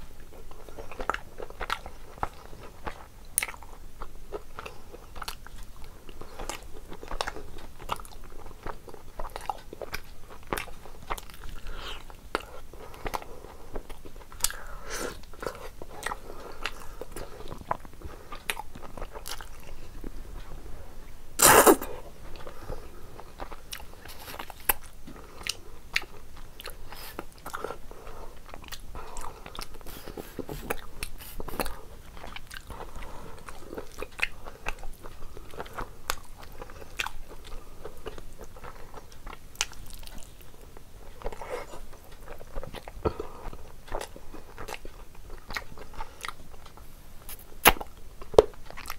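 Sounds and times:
wet chewing: 21.4 - 48.9.

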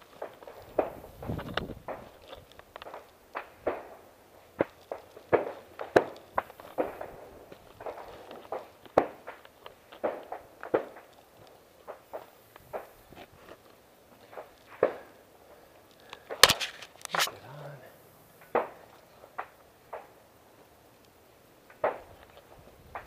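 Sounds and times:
shoes scuffing on dirt: 4.5 - 15.0.

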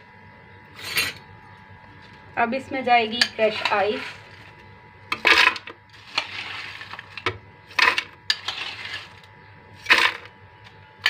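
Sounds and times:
ice rattling into blender jar: 5.1 - 10.3.

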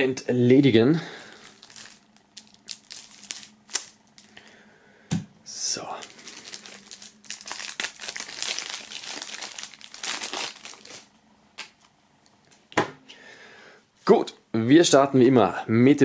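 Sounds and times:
plastic film crinkling: 1.2 - 4.5, 5.8 - 11.8.

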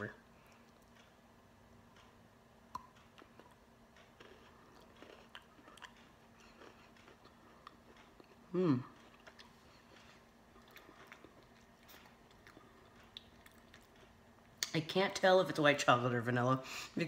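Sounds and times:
chewing crunchy biscuit: 2.8 - 14.8
person humming mm: 8.5 - 9.0.

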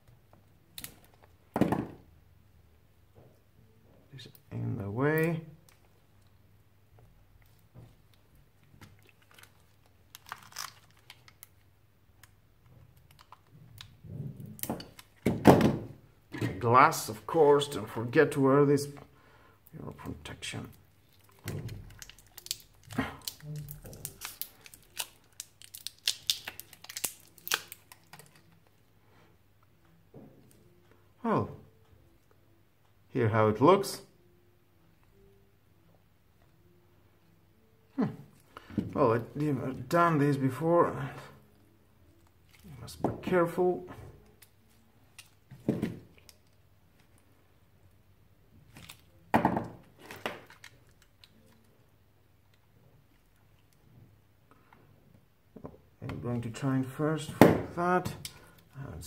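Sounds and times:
plastic wrapper tearing: 9.0 - 11.6, 21.0 - 28.6, 48.7 - 49.3, 50.0 - 51.7.

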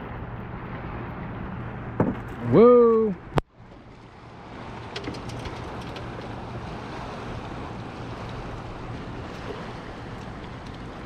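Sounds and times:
water noise: 0.0 - 11.0
wind: 0.0 - 11.0
light ticks: 10.2 - 10.9.

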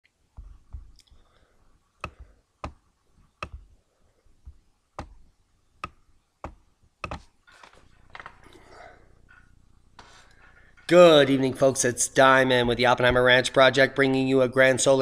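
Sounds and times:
computer mouse clicking: 3.4 - 3.7, 7.0 - 7.3
soft rustle of movement: 7.1 - 11.7.

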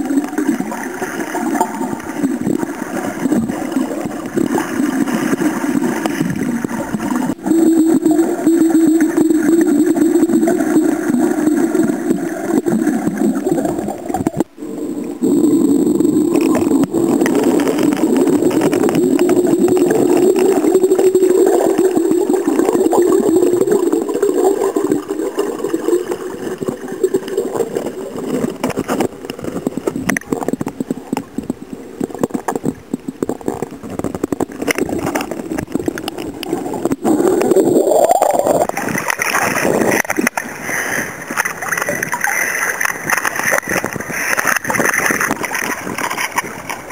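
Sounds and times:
muffled underwater rumble: 0.0 - 46.9
water swish: 0.0 - 46.9.

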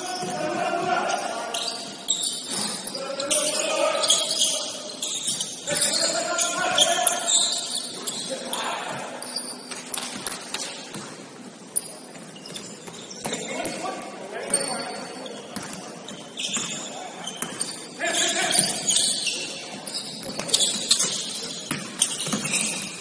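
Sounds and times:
sneakers squeaking: 0.0 - 23.0
basketball bouncing on floor: 20.2 - 22.7.

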